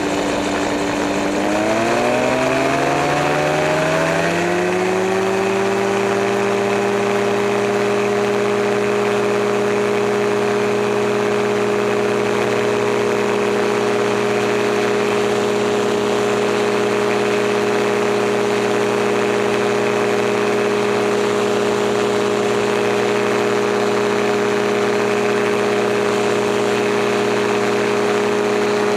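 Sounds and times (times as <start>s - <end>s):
gyroplane engine droning: 0.0s - 28.9s.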